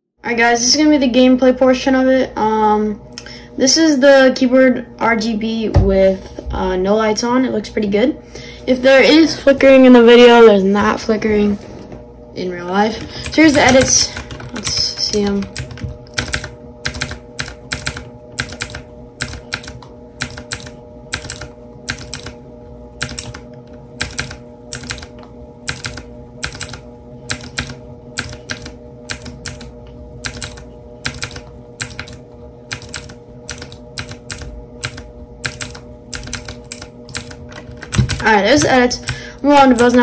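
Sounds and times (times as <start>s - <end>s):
mechanical keyboard clicking: 13.2s - 22.4s, 23.0s - 23.4s, 24.0s - 25.1s, 25.7s - 38.3s.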